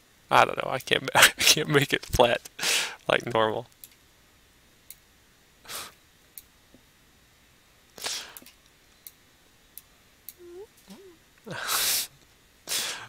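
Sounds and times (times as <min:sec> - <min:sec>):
breathy exhalations: 0:10.4 - 0:12.1.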